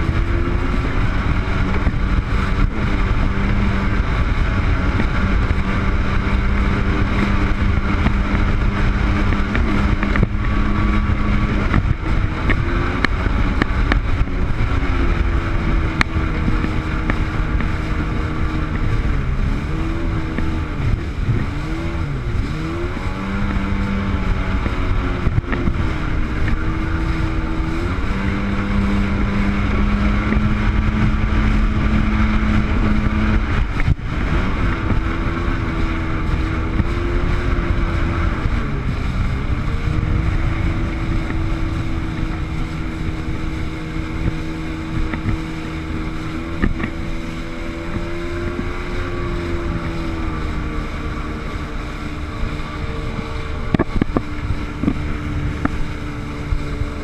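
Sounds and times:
jet ski engine running: 0.0s - 57.0s
wind buffeting microphone: 0.0s - 57.0s.

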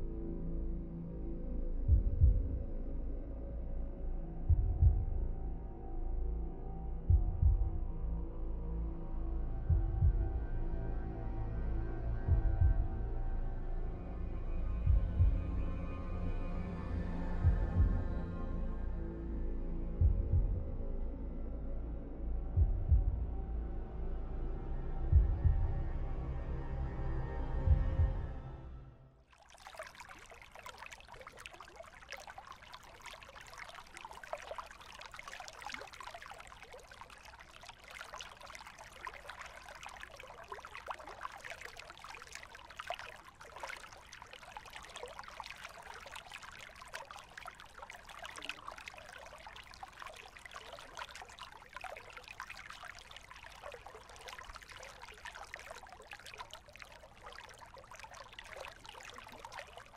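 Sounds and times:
water trickling and splashing: 29.2s - 59.9s
paddles dipping into water: 29.3s - 59.9s.

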